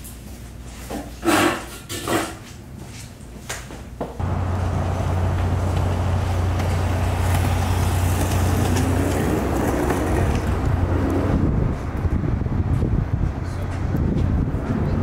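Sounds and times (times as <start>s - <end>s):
skateboard wheels rolling on concrete: 4.2s - 15.0s.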